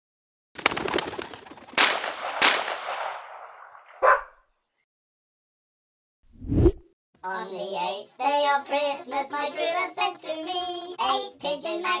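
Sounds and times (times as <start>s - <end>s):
pigeon wings clattering: 0.6s - 2.6s
shotgun shots with echo: 1.8s - 4.2s.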